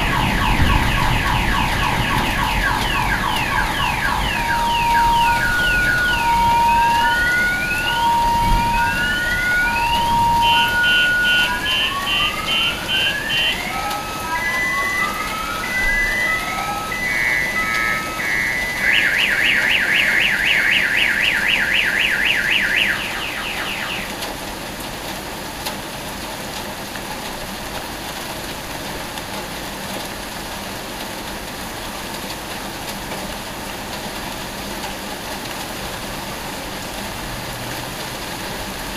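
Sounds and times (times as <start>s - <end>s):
car alarm siren: 0.0s - 24.4s
steady rain hiss: 0.0s - 38.9s.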